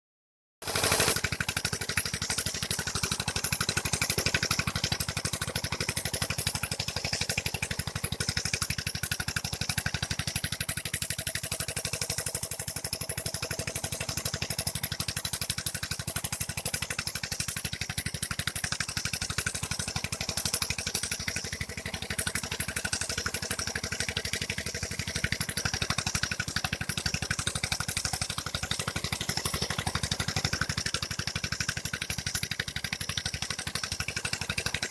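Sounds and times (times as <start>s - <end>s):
engine running steadily: 0.6s - 34.9s
spray gun hissing: 0.7s - 1.2s.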